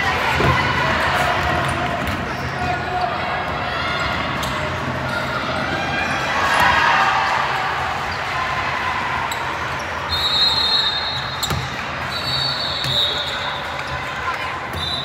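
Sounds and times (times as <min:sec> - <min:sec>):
basketball bouncing on gym floor: 0:11.4 - 0:11.8.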